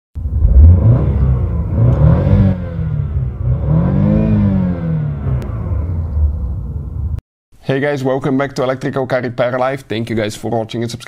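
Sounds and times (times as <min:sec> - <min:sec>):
car engine revving: 0:00.2 - 0:07.2.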